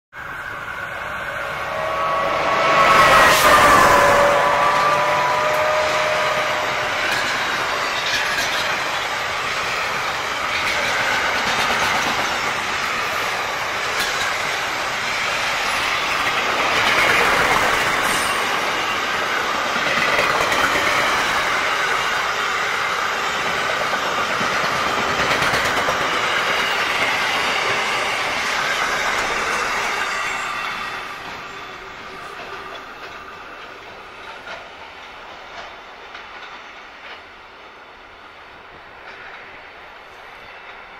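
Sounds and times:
steel wheels rushing on rail: 0.1s - 40.9s.

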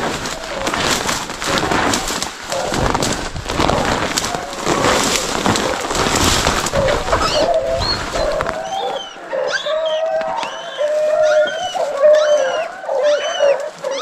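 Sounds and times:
footsteps crunching through dry leaves: 0.0s - 14.0s
hunting dogs baying faintly: 6.6s - 14.0s.

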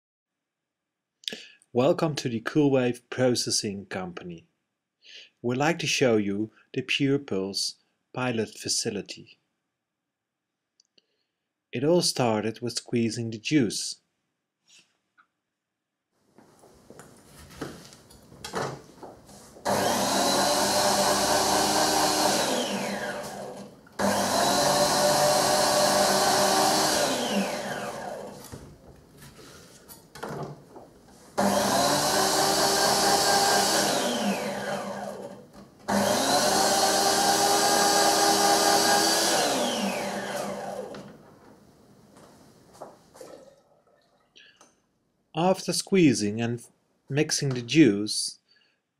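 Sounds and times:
electric juicer motor running: 19.6s - 28.6s, 31.4s - 41.1s.

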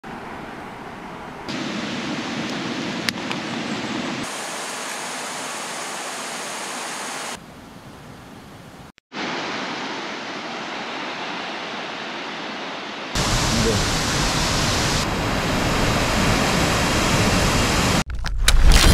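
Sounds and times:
river rushing over stones: 1.5s - 7.4s, 9.2s - 18.0s.

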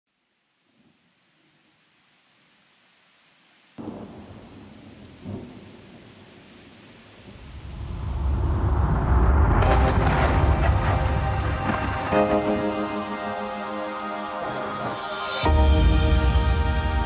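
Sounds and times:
heavy rain: 0.1s - 17.0s
deep thunder rumble: 7.3s - 12.9s
thunderclap: 7.3s - 12.9s.

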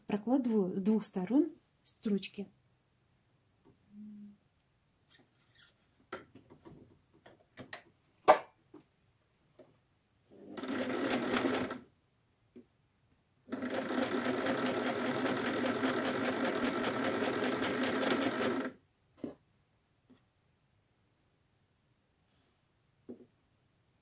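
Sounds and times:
sewing machine stitching: 10.4s - 11.8s, 13.5s - 19.3s.

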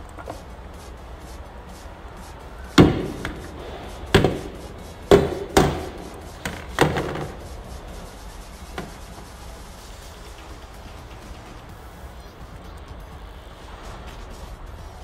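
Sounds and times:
sharp knocks with ringing tail: 2.8s - 7.5s.

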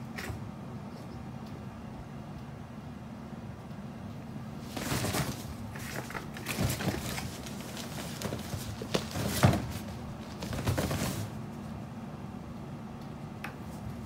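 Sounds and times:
kittens playing thumps and rustles: 4.6s - 11.6s.

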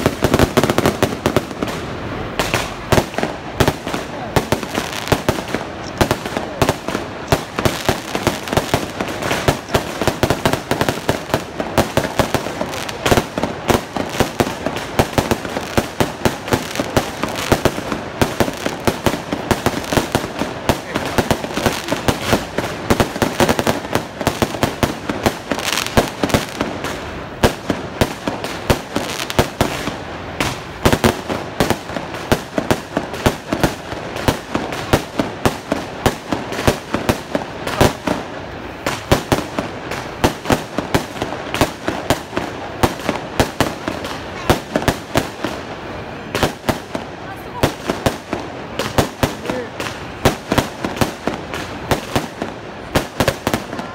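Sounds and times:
fireworks bangs and crackling: 0.0s - 53.9s.

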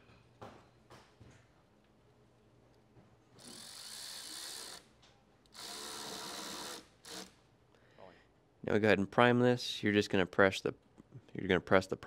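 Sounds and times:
electric ratchet whirring: 3.4s - 4.9s, 5.5s - 7.4s.

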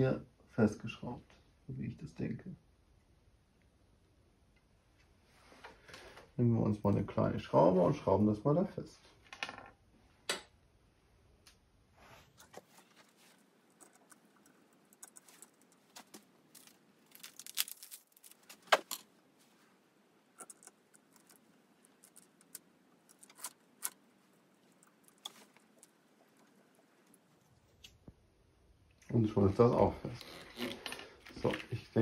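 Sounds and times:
small metal parts rattling: 16.5s - 19.0s.

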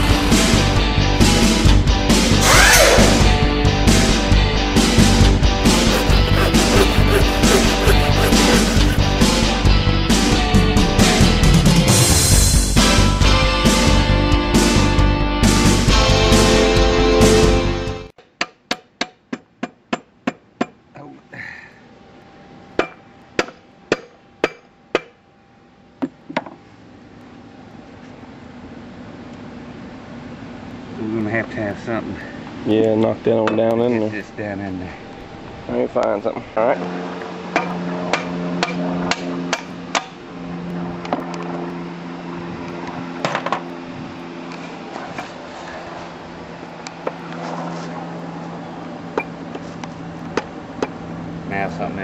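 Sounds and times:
steady hum: 5.6s - 9.6s.

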